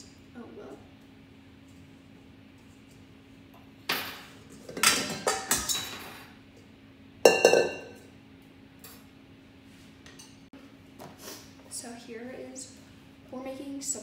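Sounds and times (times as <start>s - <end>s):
kitchenware clattering: 3.9s - 6.4s, 7.2s - 8.0s.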